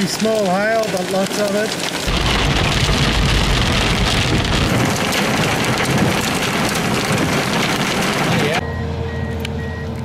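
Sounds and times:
hail and rain on car roof: 0.0s - 8.6s
low rumble: 2.1s - 8.4s.

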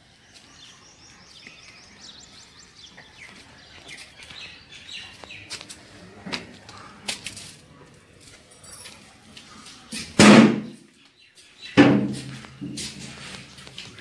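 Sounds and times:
steel door banging: 10.2s - 10.8s.

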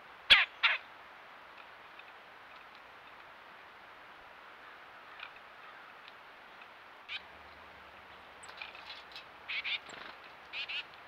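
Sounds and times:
songbird calling: 7.1s - 11.0s.

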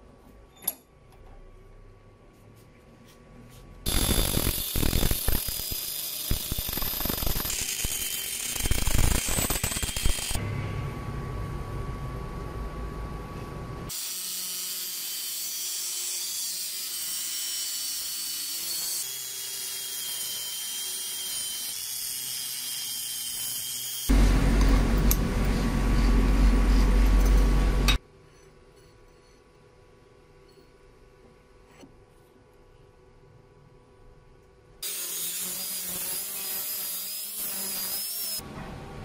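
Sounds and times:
angle grinder cutting steel: 3.9s - 10.4s, 13.9s - 25.5s, 34.8s - 38.4s
loud deep power tool noise: 13.9s - 26.9s.

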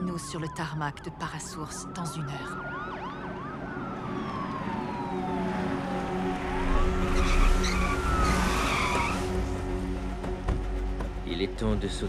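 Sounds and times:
police sirens wailing: 0.0s - 9.6s
engines rumbling: 0.0s - 11.0s.

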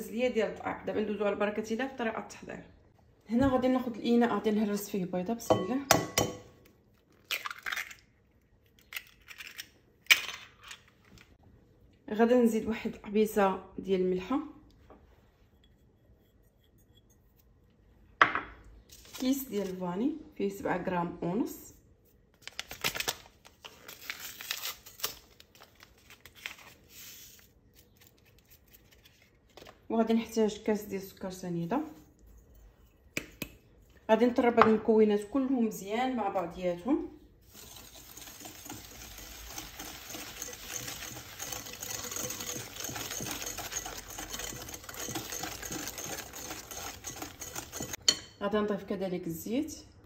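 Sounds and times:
paper sachet tearing and crinkling: 22.4s - 29.3s
whisk clattering in glass bowl: 37.6s - 48.3s.

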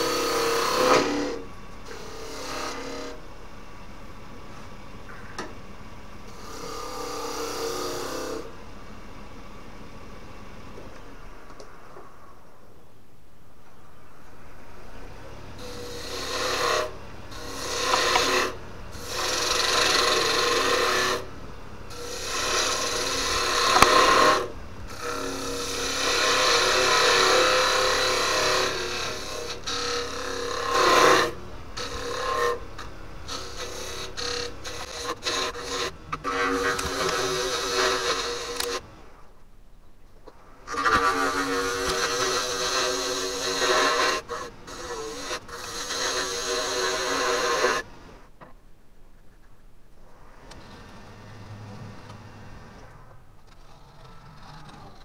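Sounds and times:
lathe tool scraping wood: 0.0s - 11.0s, 15.1s - 39.3s, 40.6s - 48.4s
lathe humming: 0.0s - 12.2s, 13.7s - 39.5s, 40.6s - 48.4s.

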